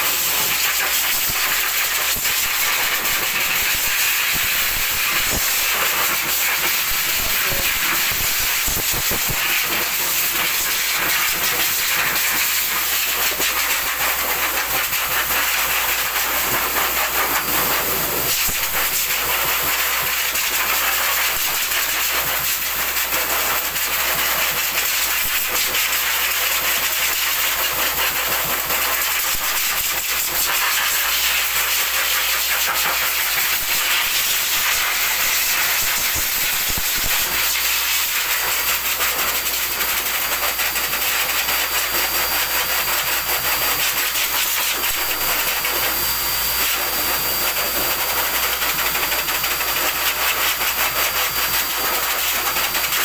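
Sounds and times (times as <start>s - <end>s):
blower dryer rushing air: 0.0s - 19.9s, 28.7s - 49.5s.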